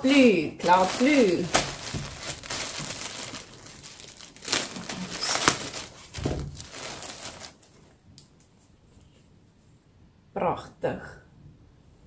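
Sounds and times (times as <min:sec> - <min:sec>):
plastic packaging crinkling: 0:00.6 - 0:07.9.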